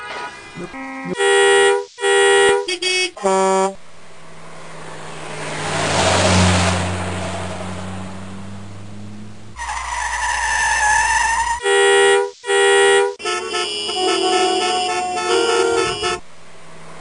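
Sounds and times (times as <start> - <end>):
car driving past: 4.2 - 9.6.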